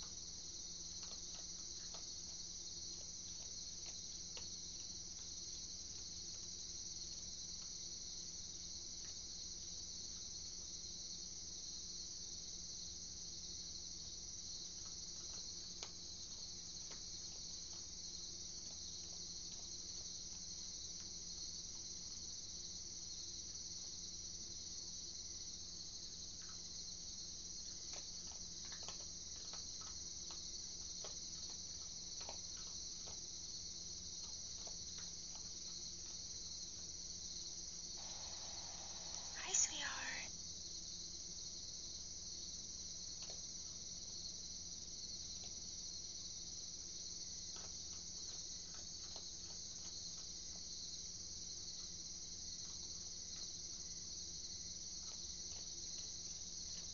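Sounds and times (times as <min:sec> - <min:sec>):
crickets trilling: 0:00.0 - 0:56.9.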